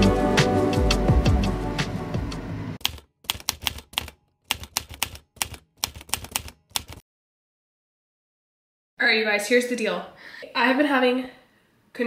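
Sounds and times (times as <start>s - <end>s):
background music: 0.0s - 2.8s.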